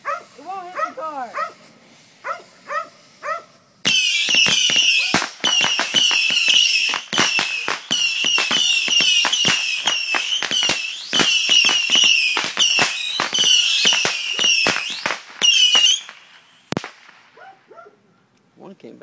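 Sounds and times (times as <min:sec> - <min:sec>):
fireworks crackling pops: 0:00.0 - 0:17.5
fireworks high whistles: 0:03.8 - 0:17.2.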